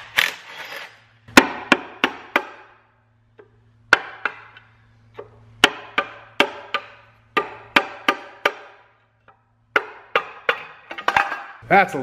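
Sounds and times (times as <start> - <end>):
hammer tapping pry bar: 3.9 - 10.8.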